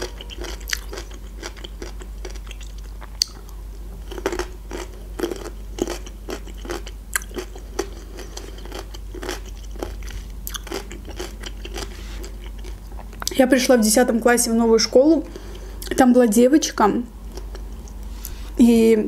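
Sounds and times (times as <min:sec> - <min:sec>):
chewing crunchy pickle: 0:00.0 - 0:13.4, 0:17.3 - 0:18.4.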